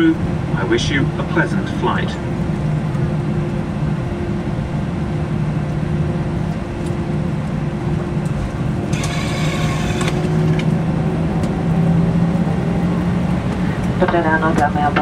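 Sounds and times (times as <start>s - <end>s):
jet engines humming in cabin: 0.0s - 15.0s
high buzzy tone: 8.9s - 10.4s.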